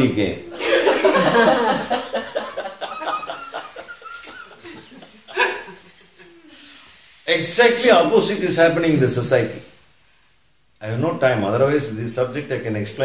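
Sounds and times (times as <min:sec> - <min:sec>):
man laughing heartily: 0:00.5 - 0:06.6.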